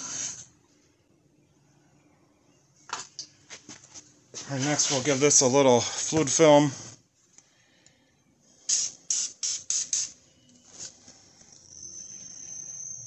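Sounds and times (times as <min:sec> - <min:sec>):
aerosol spray hisses: 0:08.6 - 0:10.2
faint high-pitched tone: 0:11.4 - 0:13.0.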